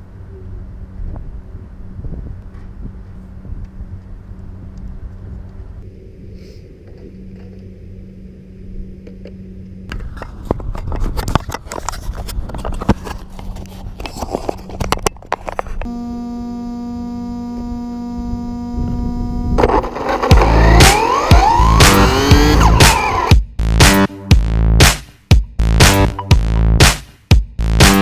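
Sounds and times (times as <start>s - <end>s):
steady buzzing tone: 15.8s - 24.6s.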